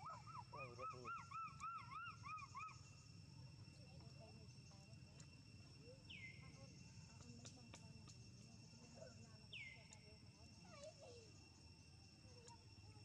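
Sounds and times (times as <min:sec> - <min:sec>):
high insect drone: 0:00.0 - 0:13.0
faint ticks: 0:03.9 - 0:05.7, 0:06.5 - 0:09.0, 0:09.8 - 0:10.1, 0:12.3 - 0:12.7.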